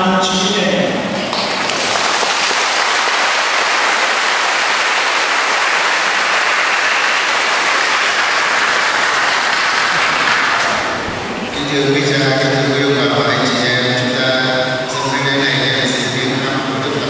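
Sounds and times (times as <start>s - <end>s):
congregation applauding: 1.3s - 13.7s.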